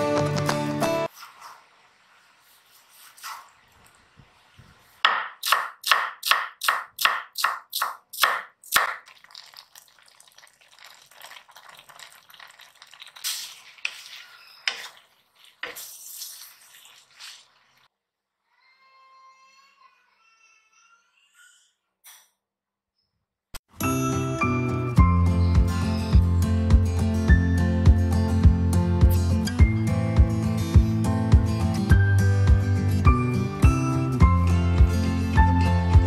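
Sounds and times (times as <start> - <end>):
meat simmering in a pan: 1.1 - 5.0, 8.8 - 17.9
knife chopping on wooden board: 5.0 - 9.0
stirring scrapes and clinks: 10.8 - 17.8.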